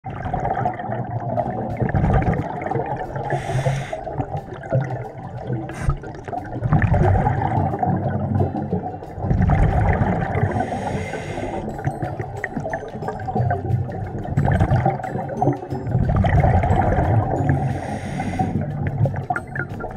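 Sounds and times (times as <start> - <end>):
muffled water noise: 0.0 - 19.9
exhaled air bubbling: 0.1 - 19.9
regulator hissing inhalations: 3.3 - 4.2, 5.7 - 6.1, 10.4 - 11.8, 17.5 - 18.8.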